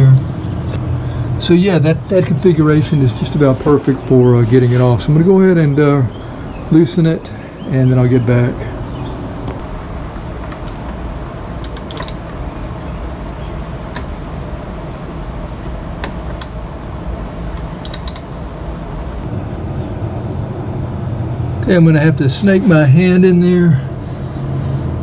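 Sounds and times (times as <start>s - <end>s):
socket wrench clicking: 11.6s - 12.2s, 17.8s - 18.4s.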